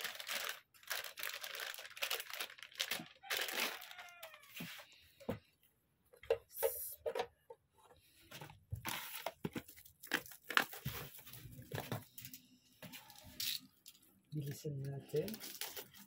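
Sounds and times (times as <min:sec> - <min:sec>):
packaging rustling and crinkling: 0:00.0 - 0:04.6, 0:08.3 - 0:13.4, 0:15.1 - 0:16.0.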